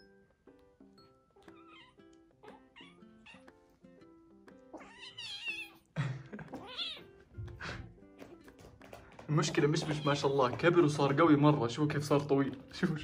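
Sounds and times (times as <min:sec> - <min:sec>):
background music: 0:00.0 - 0:13.0
kitten crying: 0:01.4 - 0:03.6, 0:04.7 - 0:05.9, 0:06.5 - 0:07.2.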